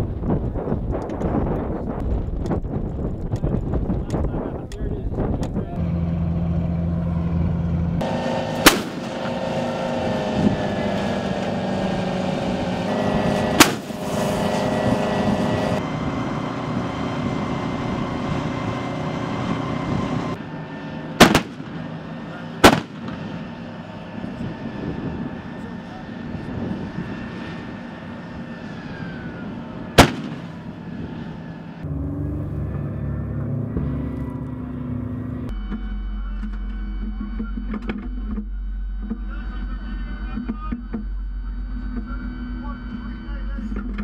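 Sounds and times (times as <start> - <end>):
engine rumble: 0.0 - 44.0
gun blasts: 8.6 - 9.3, 13.5 - 14.1, 21.2 - 23.7, 30.0 - 30.9.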